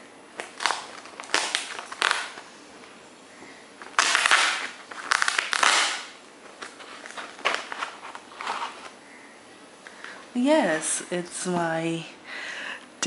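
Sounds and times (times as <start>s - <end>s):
wrapping being torn and crinkled: 0.4s - 2.5s, 3.8s - 9.0s.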